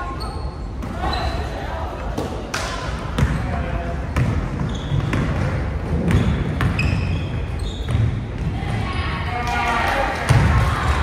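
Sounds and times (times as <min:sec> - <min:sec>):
murmur of voices: 0:00.0 - 0:04.6
shoe squeaks: 0:00.1 - 0:01.6, 0:04.6 - 0:05.3, 0:06.1 - 0:08.3.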